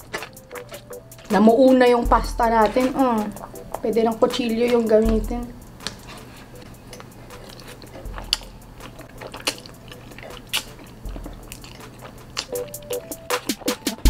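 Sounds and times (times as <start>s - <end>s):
chewing spaghetti: 0.0s - 1.4s, 5.8s - 14.0s
sharp mouth smacks: 10.3s - 10.8s.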